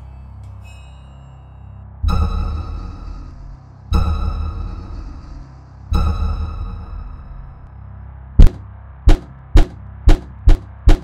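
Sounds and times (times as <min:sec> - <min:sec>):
deep electronic hits with ringing: 0:02.0 - 0:07.7, 0:08.4 - 0:11.0.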